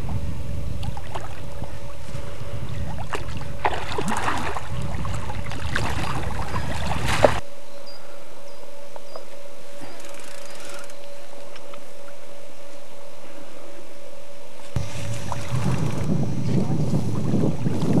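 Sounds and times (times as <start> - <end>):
wind rumble on microphone: 0.0 - 7.4, 14.6 - 18.0.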